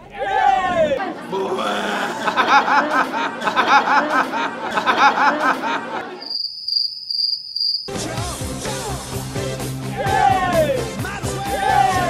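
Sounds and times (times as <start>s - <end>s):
chuckling laughter: 0.8s - 6.3s
cricket chirping sound effect: 6.2s - 8.0s
music: 7.9s - 12.0s.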